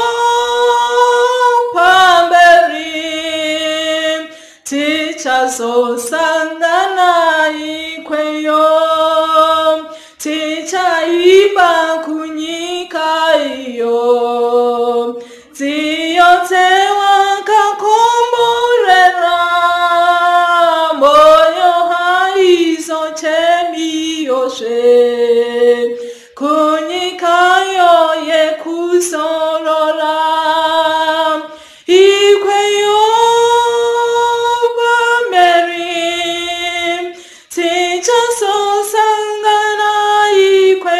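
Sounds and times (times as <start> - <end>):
woman singing a hymn unaccompanied: 0.0 - 40.9.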